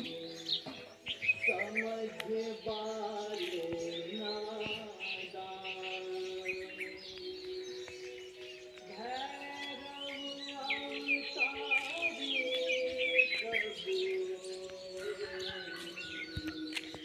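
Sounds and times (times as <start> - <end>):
background music with held notes: 0.0 - 17.0
birds chirping: 0.0 - 17.0.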